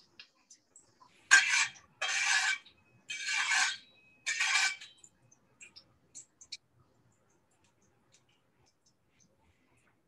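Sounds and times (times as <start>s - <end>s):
scraping inside a wok: 1.3s - 4.8s.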